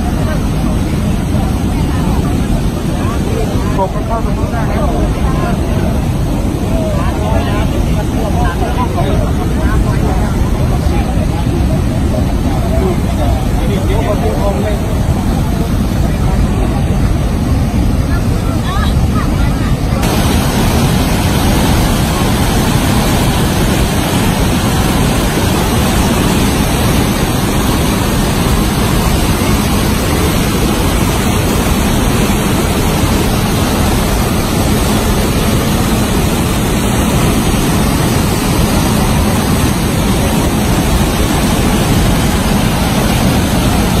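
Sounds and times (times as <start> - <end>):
floodwater rushing: 0.0 - 44.0.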